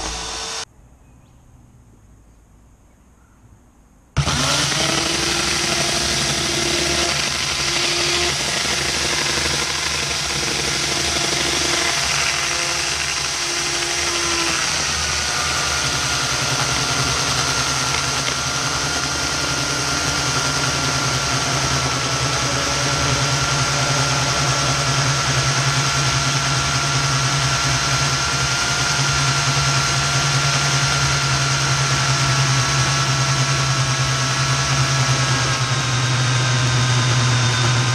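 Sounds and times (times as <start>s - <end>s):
chainsaw cutting wood: 0.0s - 0.6s, 4.2s - 37.9s.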